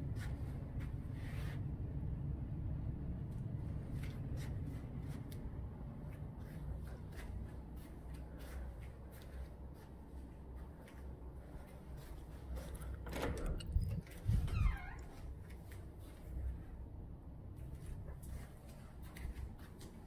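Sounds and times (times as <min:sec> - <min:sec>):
steady low hum: 0:00.0 - 0:20.0
soft rustling: 0:03.6 - 0:12.9, 0:17.6 - 0:20.0.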